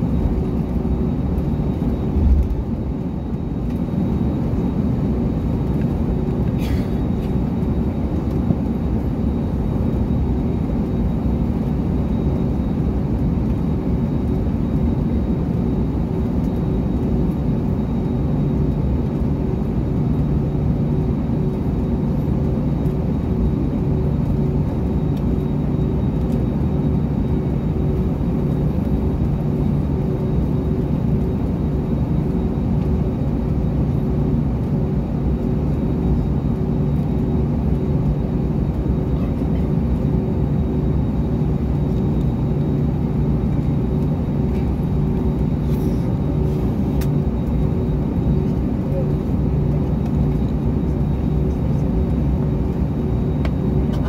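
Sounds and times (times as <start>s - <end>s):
airplane cabin engine hum: 0.0s - 54.0s.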